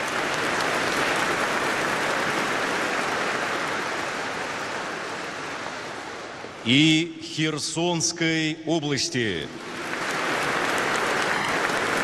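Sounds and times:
audience applauding: 0.0 - 5.8, 9.5 - 12.0.

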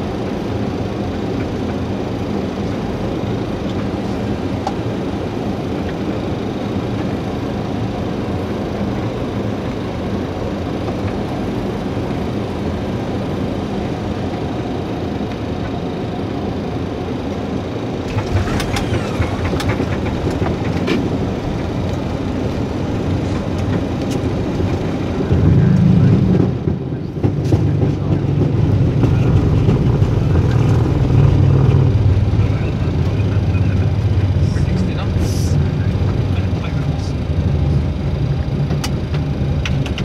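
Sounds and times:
airflow and jet engine noise: 0.0 - 40.0
deep jet engine rumble: 0.0 - 40.0.

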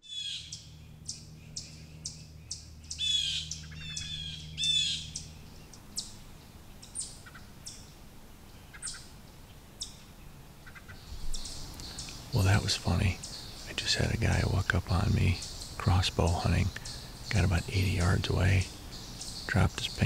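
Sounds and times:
bird chattering calls: 0.0 - 6.2, 8.7 - 9.1, 10.6 - 20.0
faint low hum: 0.0 - 20.0
songbirds chipping: 0.0 - 20.0.

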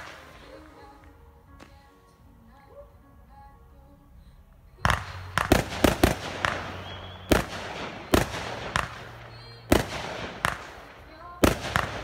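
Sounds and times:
fireworks bangs: 0.0 - 1.0, 4.8 - 12.0.

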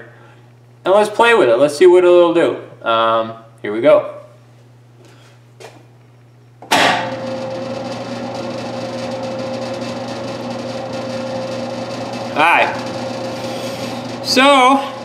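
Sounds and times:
low machine hum: 0.0 - 15.0
lathe running with steady tone: 6.7 - 15.0.

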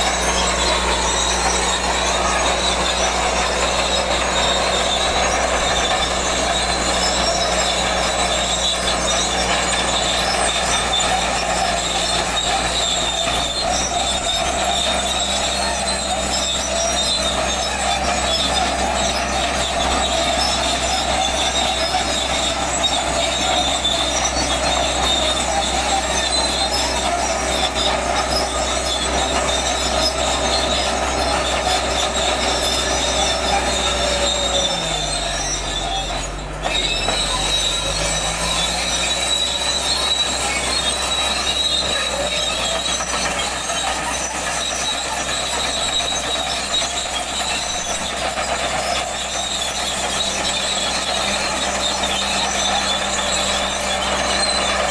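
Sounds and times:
diesel engine under heavy load: 0.0 - 54.9
steel tracks squealing and clanking: 0.0 - 54.9.

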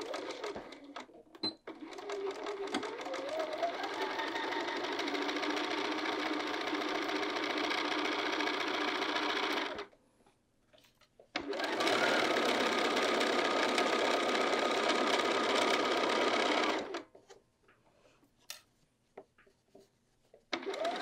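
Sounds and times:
sewing machine stitching: 0.0 - 9.9, 11.4 - 17.0, 20.5 - 21.0.

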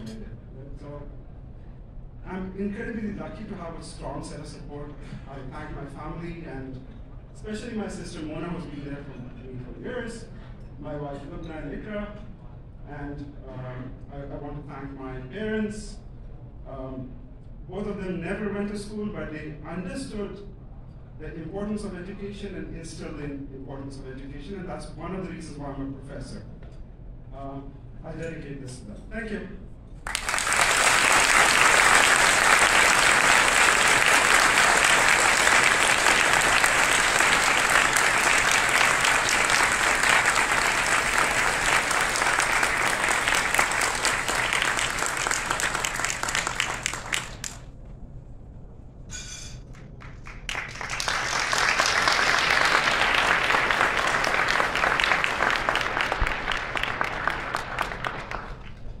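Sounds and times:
audience applauding: 30.0 - 47.6, 50.0 - 58.8.

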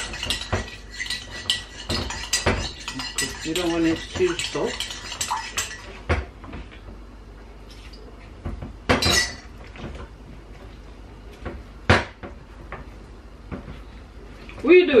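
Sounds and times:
wooden spoon scraping ceramic bowl: 0.0 - 6.1.

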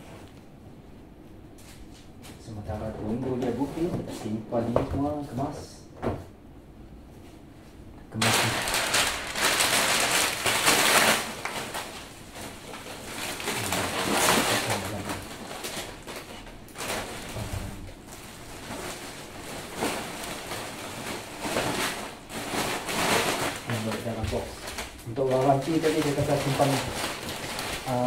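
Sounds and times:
packaging rustling and scraping: 8.2 - 28.0.

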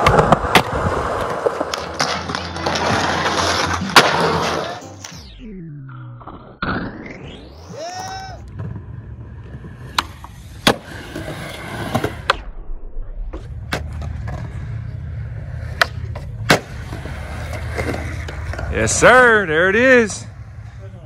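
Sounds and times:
skateboard clacks: 0.0 - 3.2
skateboard wheels rolling on concrete: 0.0 - 5.2, 7.6 - 12.5, 13.3 - 21.0.

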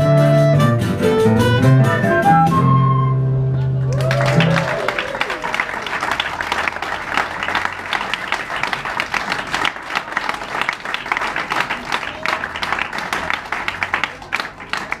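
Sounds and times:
audience applauding: 3.8 - 15.0.

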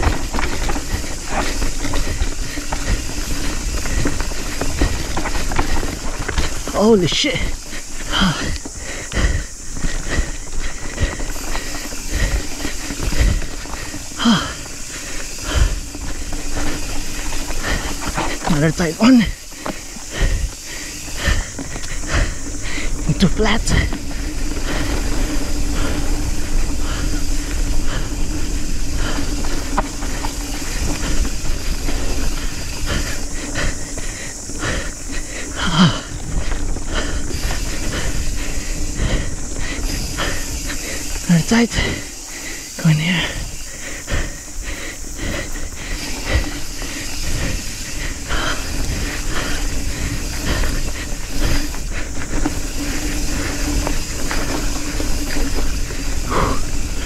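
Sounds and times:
bike knocks and rattles: 0.0 - 6.7
bike frame and chain rattling: 0.0 - 57.0
rider grunting: 0.0 - 57.0
wind and tyre noise: 0.0 - 57.0.

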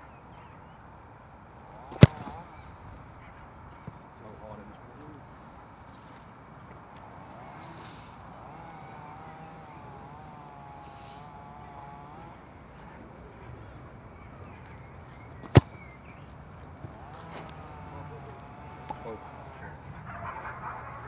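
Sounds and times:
boot kicking football: 1.9 - 2.5, 15.2 - 17.7.

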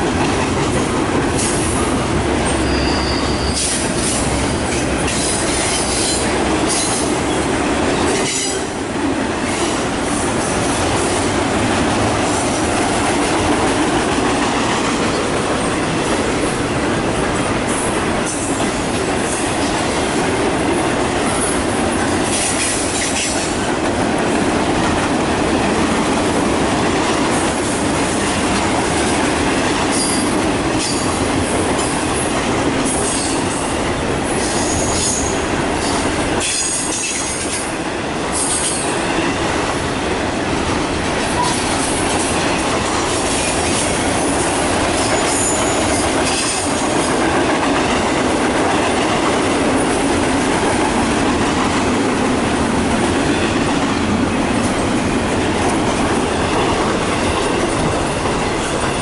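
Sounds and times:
train wheels rumbling on rail: 0.0 - 59.0
high-pitched wheel squeal: 2.6 - 3.8.

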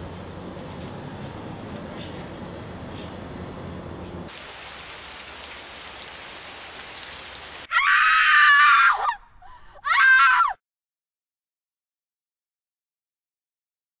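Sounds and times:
even hiss: 4.3 - 7.7
shrill screams: 7.6 - 10.6.

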